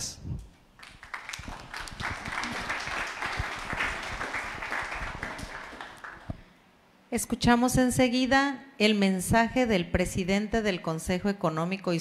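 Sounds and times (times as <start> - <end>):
audience applauding: 0.8 - 6.5.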